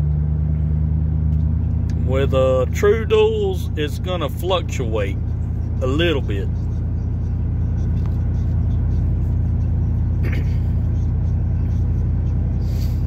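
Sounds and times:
truck exhaust low rumble: 0.0 - 13.0.

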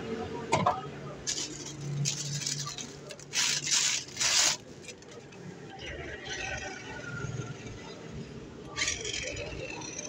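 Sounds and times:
plastic toy rubbing and rustling: 1.2 - 5.3.

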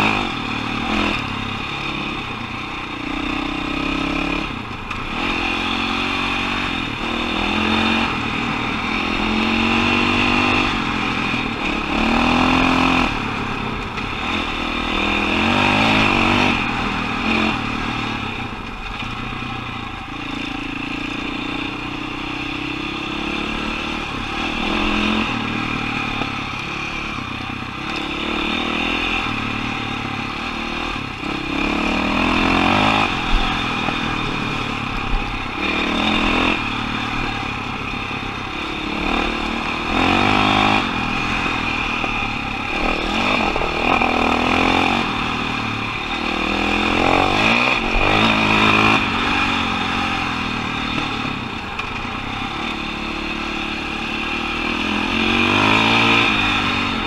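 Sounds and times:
dirt bike engine revving: 0.0 - 57.0
steady rushing noise: 22.6 - 57.0.

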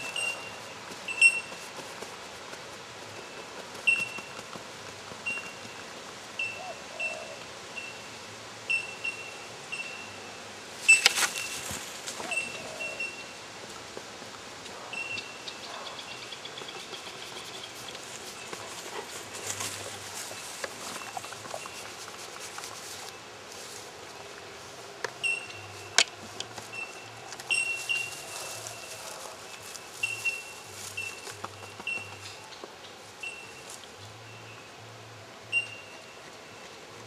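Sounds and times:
bird chirping: 10.9 - 13.4, 14.9 - 18.7, 25.2 - 34.8.

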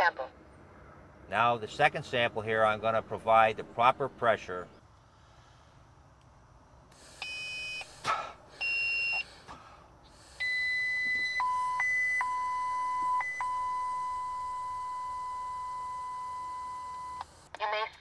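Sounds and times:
continuous electronic tone: 7.0 - 9.3, 10.0 - 18.0
short electronic beeps: 7.2 - 8.0, 8.6 - 9.2, 10.4 - 17.3
puff of breath: 7.8 - 10.6.

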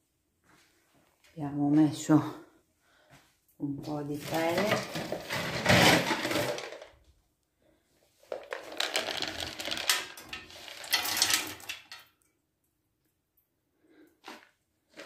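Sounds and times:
wood pellets clattering into metal tube: 4.2 - 7.0, 8.3 - 12.1.

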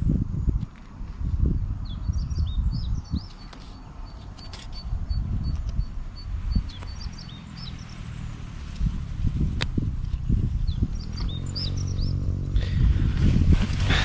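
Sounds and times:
small birds chirping: 1.8 - 12.8.

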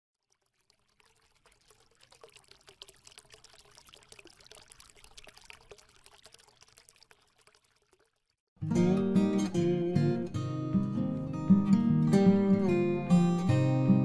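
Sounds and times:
faint trickling liquid: 0.1 - 8.5.

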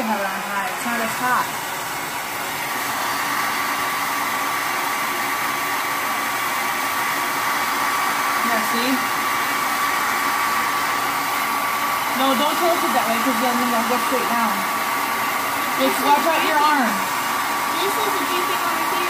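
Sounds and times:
hair dryer blowing: 0.0 - 19.0.

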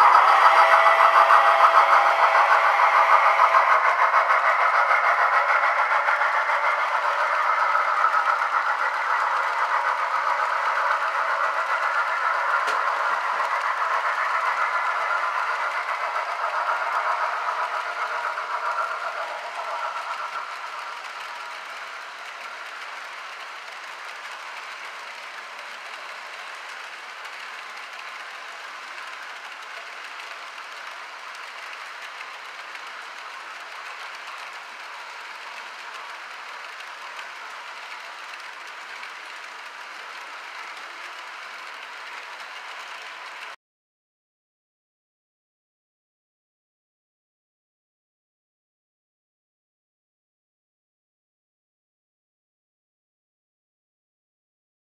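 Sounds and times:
model train clattering: 0.0 - 43.6.

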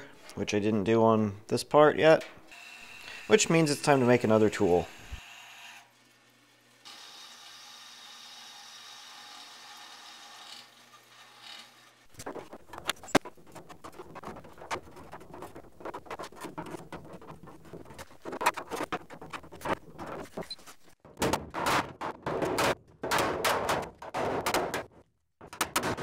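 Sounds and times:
bandsaw running: 2.5 - 5.9.

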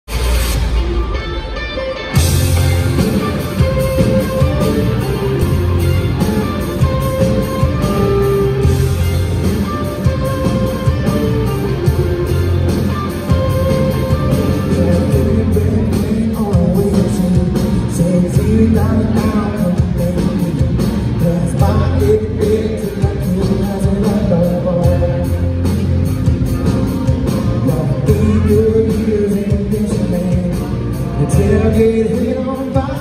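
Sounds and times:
country rock band playing: 0.1 - 33.0
man singing: 13.6 - 25.7, 27.5 - 33.0.

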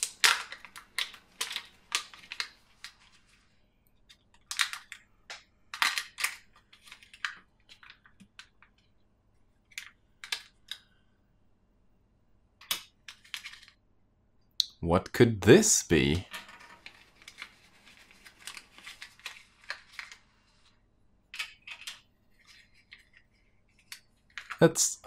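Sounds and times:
foil wrapper crinkling: 0.0 - 3.2, 16.8 - 20.5.

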